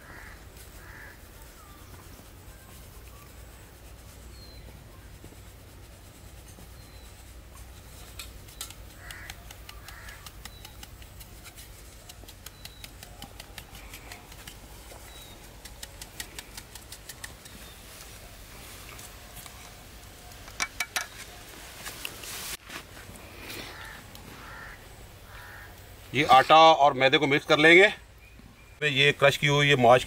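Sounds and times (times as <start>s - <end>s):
faint bird chirps: 0.2s - 5.2s, 12.4s - 14.2s.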